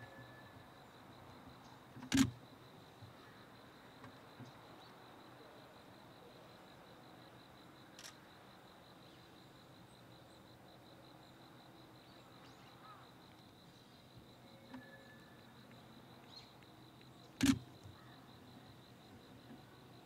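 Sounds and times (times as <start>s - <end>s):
sharp click: 2.0s - 2.4s, 17.4s - 17.6s.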